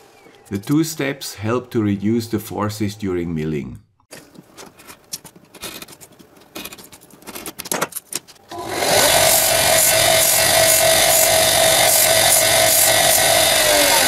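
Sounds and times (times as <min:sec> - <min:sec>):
belt sander whining: 0:08.5 - 0:14.0.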